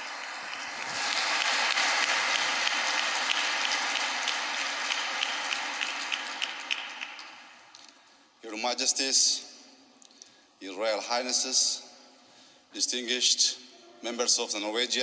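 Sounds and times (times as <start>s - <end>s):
audience applauding: 0.0s - 7.6s.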